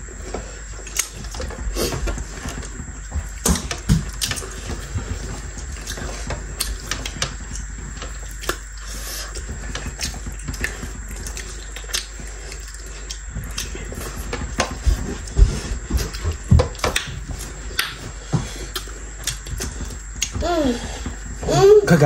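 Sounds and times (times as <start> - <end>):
wet chewing and lip smacks: 9.9 - 13.8.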